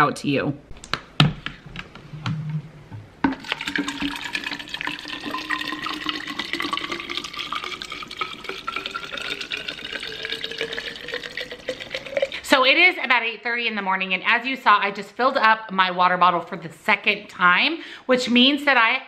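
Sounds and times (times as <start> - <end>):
water pouring into plastic bottle: 3.3 - 12.4.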